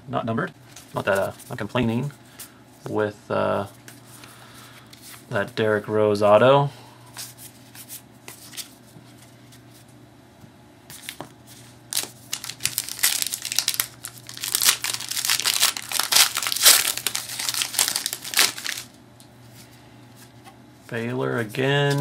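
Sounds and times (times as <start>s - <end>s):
wrapper crackling rustles: 11.9s - 19.0s.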